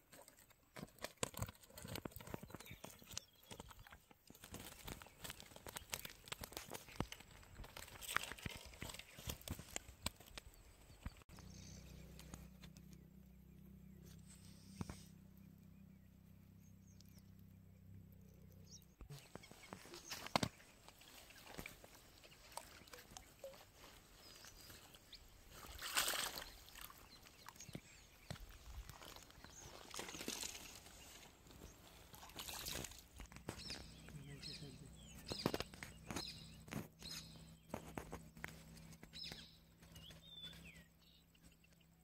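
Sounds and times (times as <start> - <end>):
water sloshing: 19.2 - 34.0
water splash: 25.6 - 27.0.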